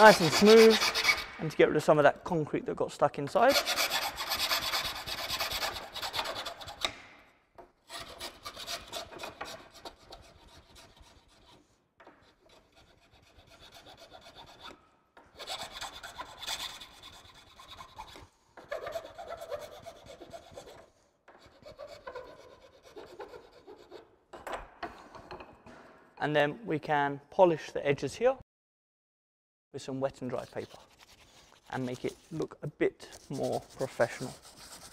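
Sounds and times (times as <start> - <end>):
file scraping plastic: 0.0 - 1.5, 3.5 - 7.2, 7.8 - 24.1, 30.3 - 34.9.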